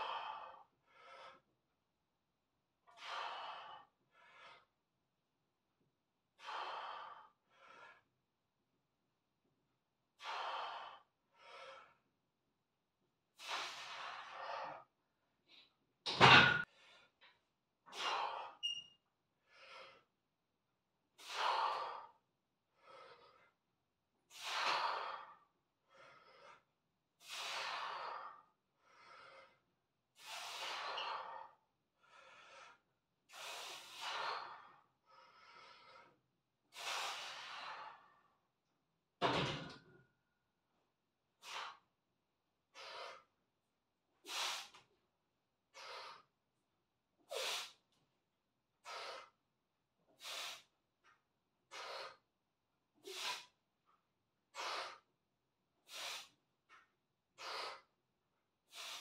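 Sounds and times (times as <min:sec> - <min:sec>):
person breathing heavily: 0:00.0 - 0:01.5, 0:02.9 - 0:04.8, 0:06.4 - 0:08.1, 0:10.2 - 0:12.0, 0:13.4 - 0:14.9, 0:19.4 - 0:20.1, 0:21.2 - 0:23.6, 0:24.3 - 0:38.4, 0:42.7 - 0:43.3, 0:45.7 - 0:46.3, 0:48.8 - 0:49.4, 0:50.1 - 0:50.8, 0:51.7 - 0:52.3, 0:53.0 - 0:53.6, 0:54.5 - 0:55.1, 0:55.8 - 0:56.4, 0:57.4 - 0:57.9, 0:58.7 - 0:59.0.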